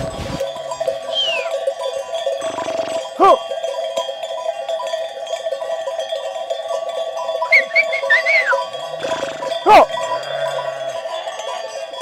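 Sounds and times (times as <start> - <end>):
sheep bells clinking: 0.0 - 12.0
animal call: 1.1 - 1.6, 2.4 - 3.4, 7.5 - 11.7.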